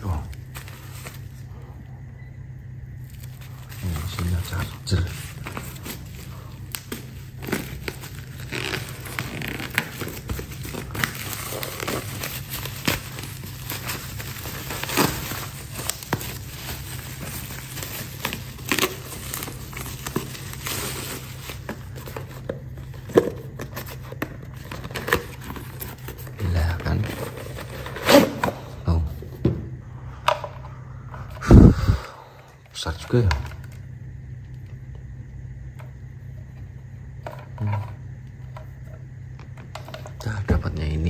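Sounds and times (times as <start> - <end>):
bubble wrap crinkling: 0.0 - 1.5, 3.0 - 28.7.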